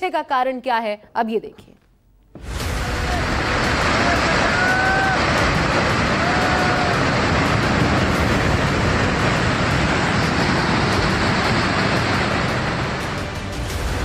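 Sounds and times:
landslide debris rushing: 2.4 - 14.0.

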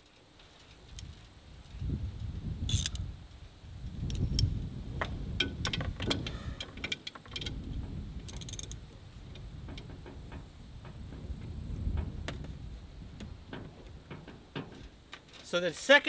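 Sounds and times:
ratchet wrench clicking: 2.7 - 3.0, 8.3 - 8.8
metal clinking on bolts: 8.3 - 8.8.

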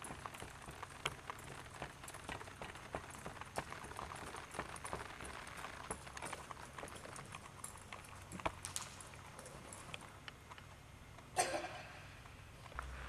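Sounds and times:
hoofbeats on soft dirt: 0.0 - 10.0
low steady hum: 0.0 - 13.0.

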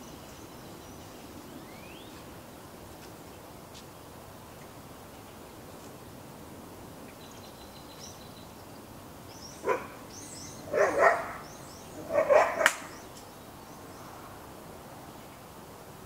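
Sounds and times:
small birds chirping: 0.0 - 6.2, 7.0 - 14.2
dog barking: 9.6 - 10.0, 10.7 - 11.4, 12.0 - 12.9.

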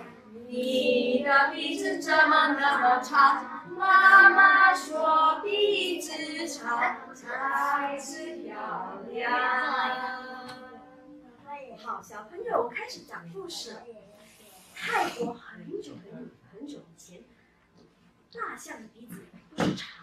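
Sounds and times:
two women singing: 0.0 - 11.0.

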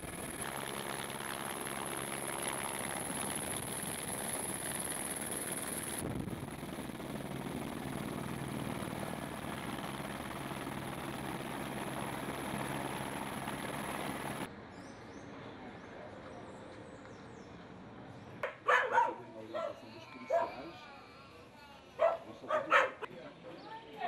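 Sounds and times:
helicopter rotor and engine drone: 0.0 - 14.5.

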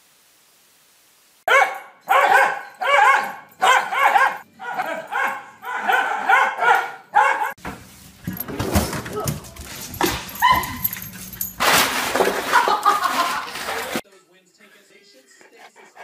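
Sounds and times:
dog barking: 1.5 - 7.6, 10.1 - 11.0.

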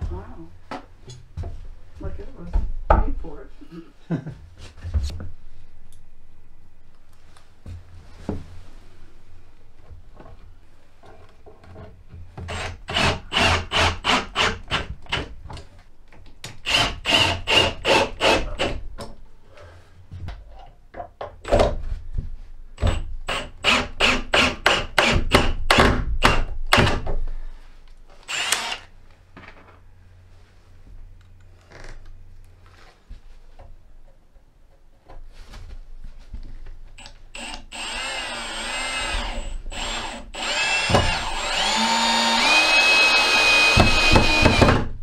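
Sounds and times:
cordless drill driving screws: 12.5 - 14.8, 16.6 - 18.7, 28.3 - 28.9, 37.0 - 44.8.

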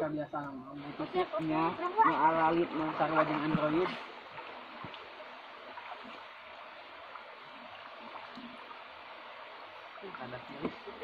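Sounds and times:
river water babbling over rocks: 0.8 - 11.0.

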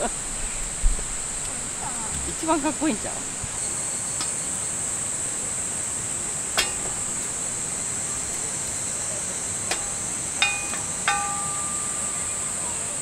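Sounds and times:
insects droning: 0.0 - 13.0
metal tongs clinking: 6.6 - 7.5, 9.7 - 12.8.

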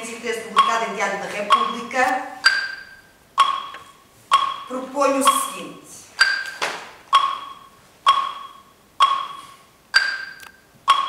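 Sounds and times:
metronome ticking: 0.0 - 11.0.

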